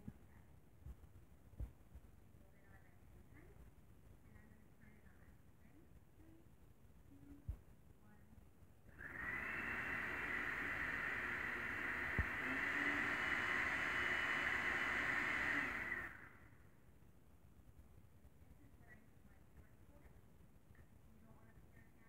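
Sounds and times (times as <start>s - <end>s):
blender running: 8.9s - 16.5s.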